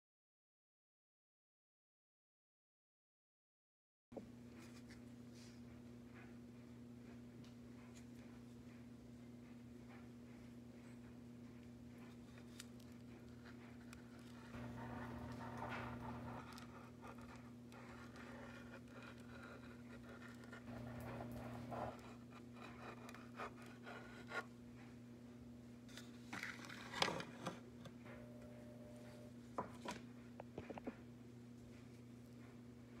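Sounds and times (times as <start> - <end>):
low electrical hum: 4.2 - 33.0
hands rubbing piping bag: 14.1 - 22.7.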